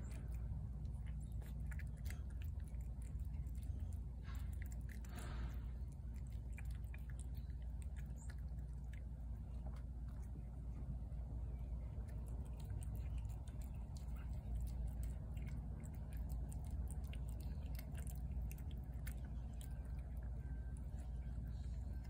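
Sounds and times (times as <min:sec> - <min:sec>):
cat chewing wet food: 0:00.0 - 0:22.0
low steady rumble: 0:00.0 - 0:22.0.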